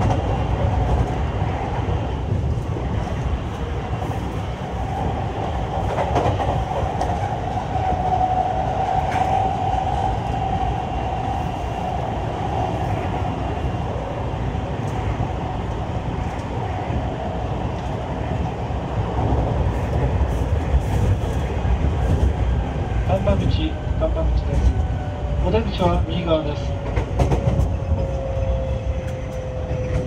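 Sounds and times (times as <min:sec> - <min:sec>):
train wheels rumbling on rail: 0:00.0 - 0:30.0
rail-joint clacks: 0:23.2 - 0:28.4.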